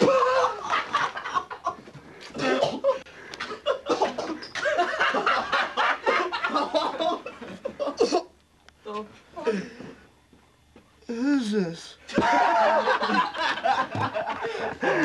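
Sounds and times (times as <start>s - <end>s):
people laughing and shrieking: 0.0s - 1.2s.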